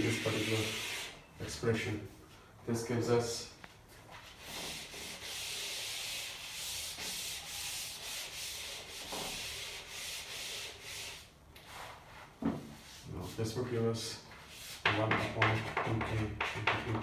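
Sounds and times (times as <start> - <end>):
eraser scrubbing a chalkboard: 0.0 - 1.2, 4.1 - 13.6, 14.3 - 17.0.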